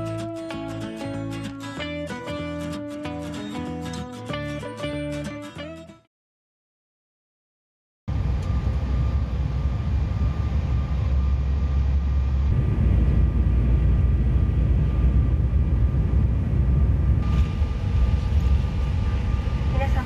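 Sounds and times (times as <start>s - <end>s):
jet airliner rumble from cabin: 8.1s - 20.0s.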